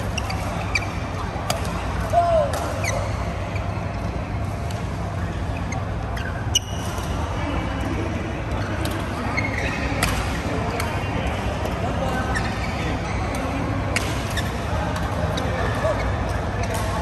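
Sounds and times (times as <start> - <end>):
shoe squeak: 0.0 - 1.0, 5.5 - 7.2, 8.6 - 10.1, 12.2 - 13.3
low hum of sports hall: 0.0 - 17.0.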